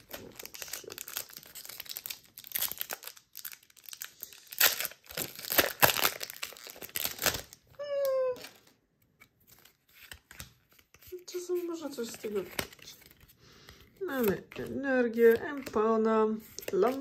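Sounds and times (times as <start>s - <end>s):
foil wrapper crinkling and tearing: 0.0s - 8.7s.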